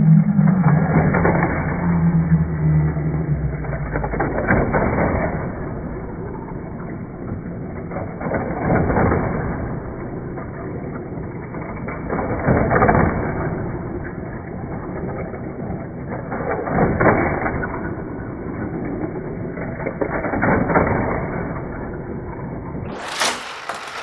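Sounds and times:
toy cars rattling on plastic track: 0.0 - 24.0
toy track motor whirring: 22.9 - 24.0.

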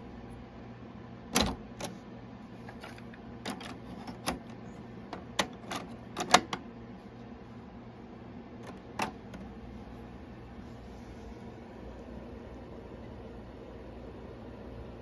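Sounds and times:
cassette door clacking open: 1.3 - 2.0, 3.4 - 6.6, 8.6 - 9.5
plastic clicks of cassettes: 5.1 - 6.6.

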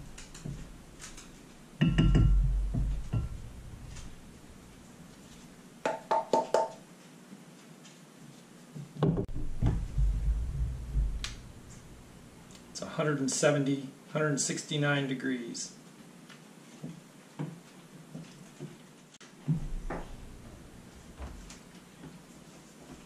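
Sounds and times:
glass clinks: 1.8 - 2.5, 3.1 - 3.4.

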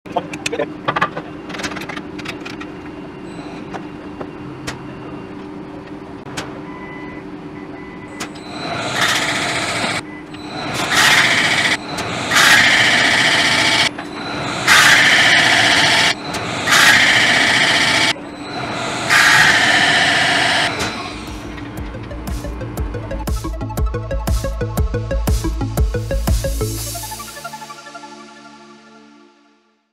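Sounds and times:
hissing metal cutting noise: 8.4 - 21.6
lathe humming: 8.6 - 10.0, 10.8 - 21.5.

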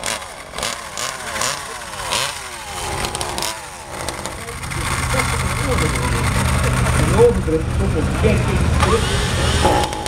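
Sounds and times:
small model engine revving: 0.0 - 7.1.

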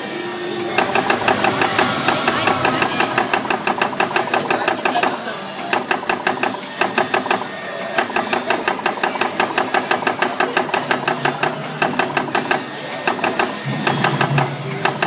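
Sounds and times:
low hum: 0.0 - 4.8
rapid mechanical clatter: 0.0 - 15.0.

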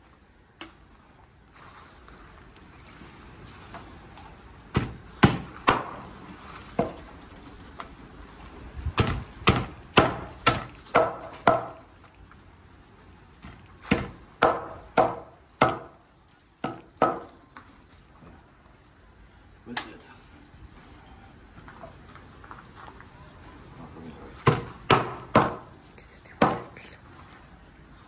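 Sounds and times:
cleaver chopping meat: 4.7 - 6.0, 9.0 - 11.8, 13.9 - 16.0, 24.4 - 25.7.

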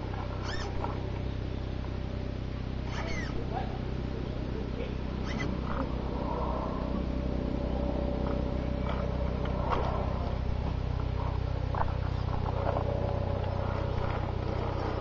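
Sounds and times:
thin steady whine: 0.0 - 15.0
toy truck motor drone: 0.4 - 0.8, 5.2 - 5.8.

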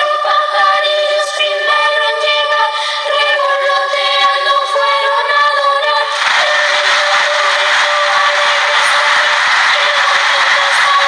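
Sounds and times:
girls' choir singing: 3.4 - 11.0.

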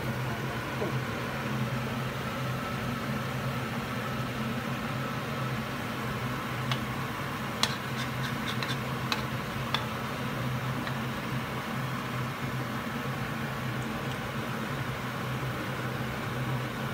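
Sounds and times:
shrimp sizzling in hot oil: 6.3 - 11.2.

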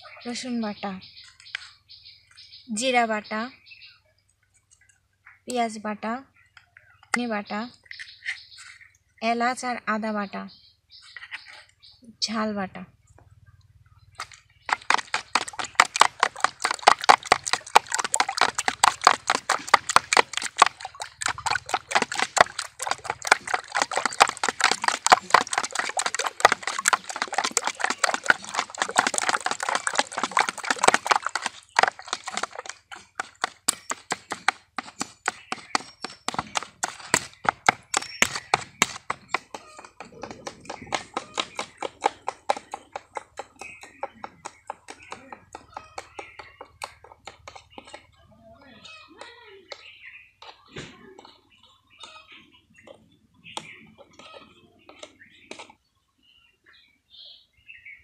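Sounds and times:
spoon beating eggs in bowl: 14.7 - 35.3.

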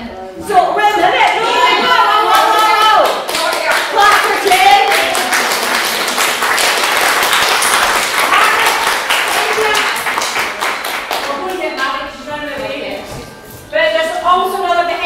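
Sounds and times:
people applauding: 2.2 - 11.8.

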